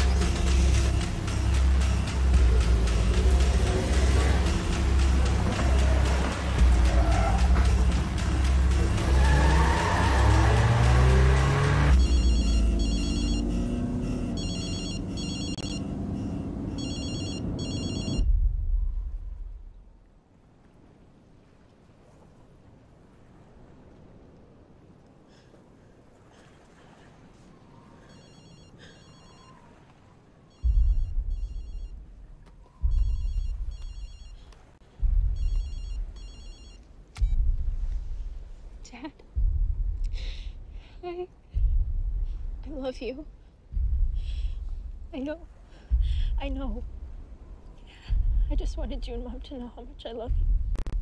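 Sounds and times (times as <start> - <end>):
car engine drone: 0.0 - 18.4
low rumble: 0.0 - 20.3, 30.6 - 51.0
phone ringtone trilling: 12.0 - 18.2, 28.1 - 29.6, 30.5 - 31.9, 32.9 - 34.4, 35.4 - 36.8
telephone ringing: 14.4 - 15.8, 16.8 - 18.2, 28.1 - 29.6, 35.4 - 36.8
deep boom: 30.7 - 32.0, 32.8 - 33.8, 37.2 - 38.7, 39.3 - 40.9, 41.5 - 42.8, 43.7 - 45.2, 45.9 - 47.3, 48.1 - 49.5, 50.3 - 51.0.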